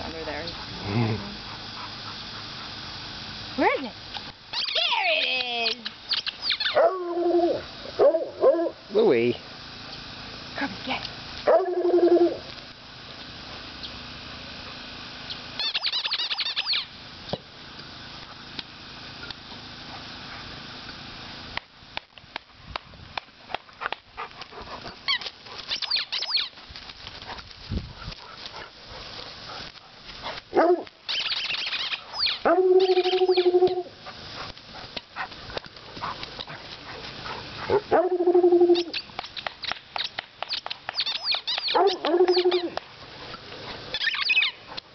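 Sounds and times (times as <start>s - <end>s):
birds chirping: 15.2s - 17.0s, 24.8s - 26.6s, 31.1s - 33.9s, 38.2s - 44.7s.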